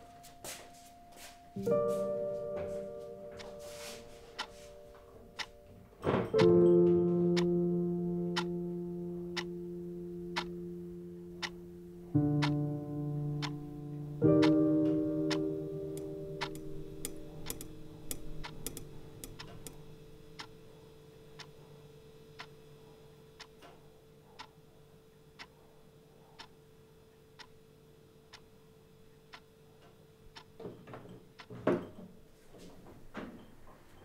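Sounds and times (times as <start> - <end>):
faint held music notes: 0.0 - 23.4
wall clock ticking: 3.2 - 5.7, 6.3 - 6.6, 7.2 - 7.6, 8.2 - 10.6, 11.3 - 22.8, 23.4 - 25.6, 26.2 - 30.6, 31.3 - 31.6.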